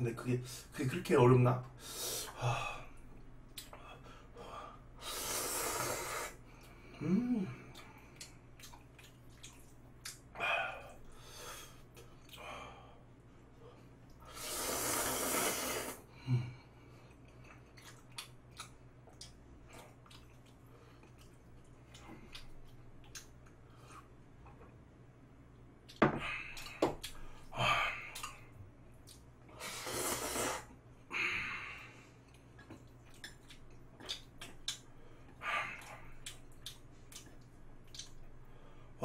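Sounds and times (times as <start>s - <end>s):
man slurping noodles: 5.0s - 6.4s, 14.3s - 16.0s, 29.6s - 30.7s
short vocal noises: 7.0s - 7.9s
chewing clicks: 32.3s - 34.9s, 36.2s - 38.3s.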